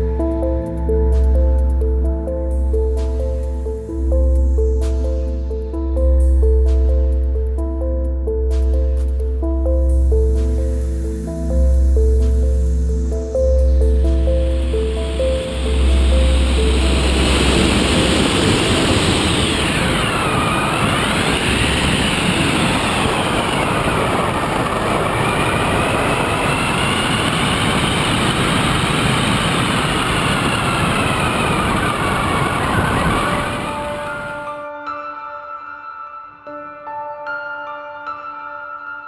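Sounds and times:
wind rushing: 13.8 - 34.6
model plane motor whine: 14.5 - 34.5.

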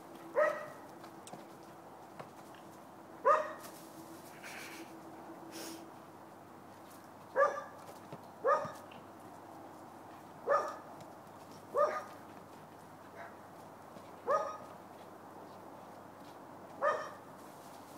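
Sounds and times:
dog barking: 0.4 - 0.8, 3.2 - 3.6, 7.4 - 7.8, 8.4 - 8.8, 10.4 - 10.8, 11.7 - 12.1, 13.1 - 13.4, 14.2 - 14.7, 16.8 - 17.2.

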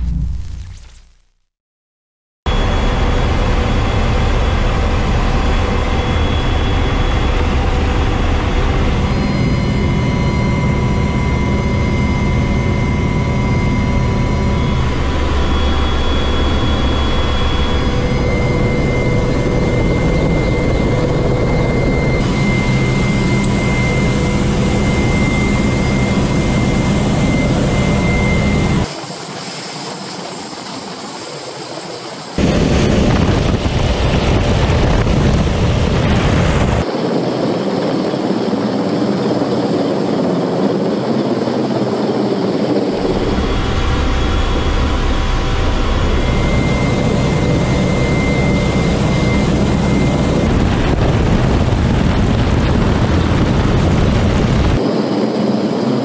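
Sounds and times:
high gearbox whine: 2.5 - 29.2, 42.7 - 50.6
helicopter cabin turbine and rotor noise: 2.5 - 56.0.

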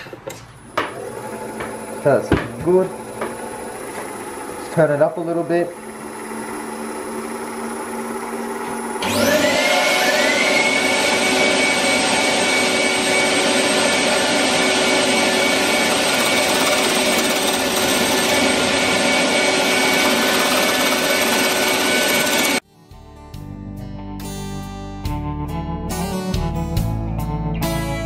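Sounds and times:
wood lathe humming and whining: 0.7 - 22.6.

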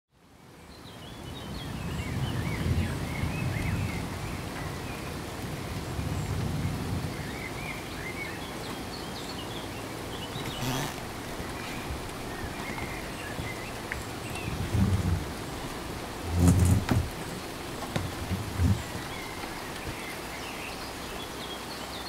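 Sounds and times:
steady rain: 0.1 - 22.0
small birds chirping: 7.1 - 22.0.

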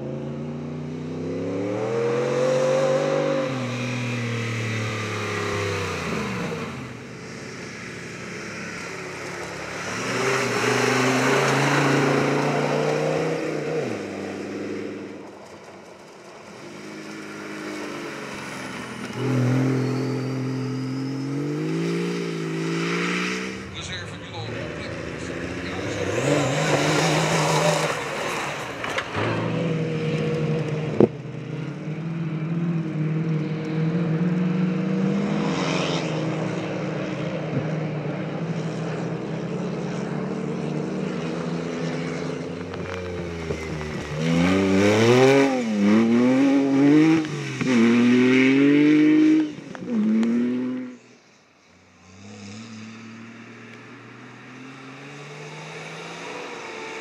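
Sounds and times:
rally car engine revving: 8.3 - 51.2, 51.9 - 57.0.

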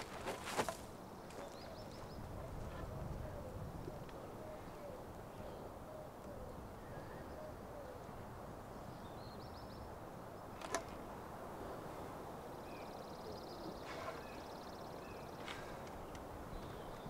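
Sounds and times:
faint bird chirps: 12.0 - 17.0.

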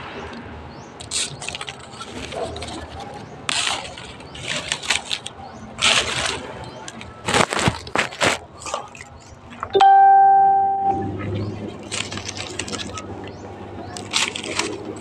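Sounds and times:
knife scraping dry leaves: 1.0 - 9.1, 14.0 - 15.0.

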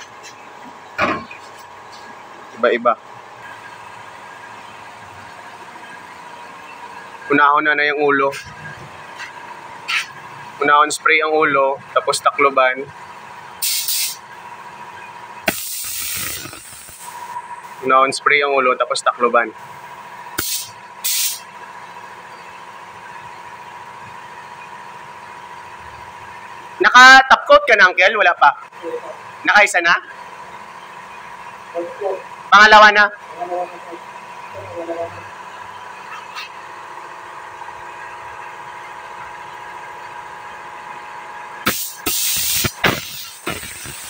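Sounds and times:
air compressor whining: 0.0 - 26.8, 33.2 - 44.0
steady background hum: 0.0 - 44.0
spray gun hissing: 13.6 - 14.2, 15.5 - 17.8, 20.4 - 21.4, 41.7 - 44.0.

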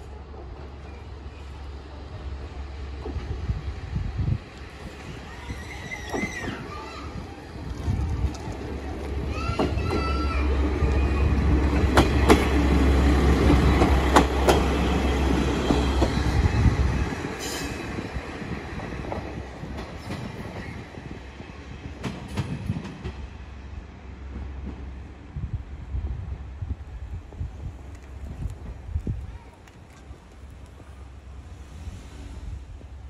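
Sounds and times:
train wheels clacking on rail joints: 7.6 - 16.3, 22.0 - 23.3.

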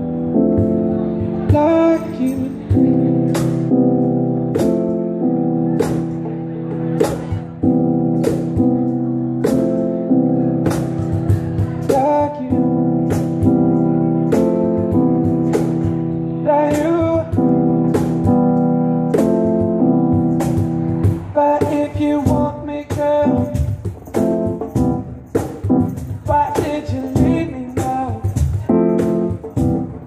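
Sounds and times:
person singing: 0.0 - 3.6, 11.2 - 14.7, 15.4 - 18.3, 21.1 - 23.8, 26.1 - 30.0
electric keyboard chords: 0.0 - 30.0
sharp percussion hits: 19.1 - 30.0.

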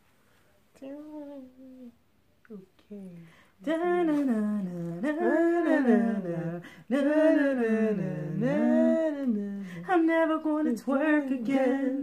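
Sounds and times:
woman singing wordless tune: 3.6 - 12.0.

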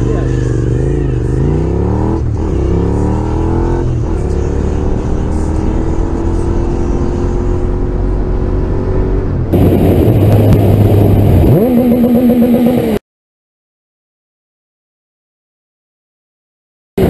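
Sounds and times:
motorcycle engine accelerating: 0.0 - 13.0
rough rush of noise: 9.2 - 13.0.

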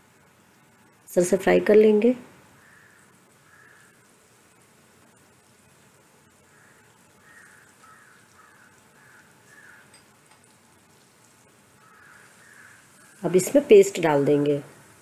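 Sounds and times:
garlic frying in hot oil: 0.0 - 15.0
crow cawing: 2.6 - 4.0, 6.5 - 10.0, 11.8 - 12.9.

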